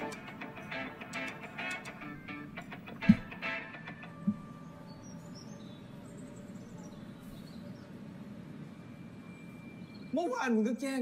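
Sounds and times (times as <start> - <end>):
brief thump: 3.1 - 3.3
faint bird chirps: 3.8 - 10.3.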